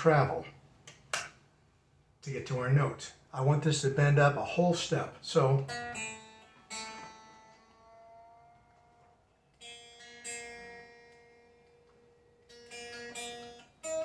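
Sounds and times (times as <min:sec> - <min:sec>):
guitar string plucked and ringing: 0:05.4 - 0:14.0.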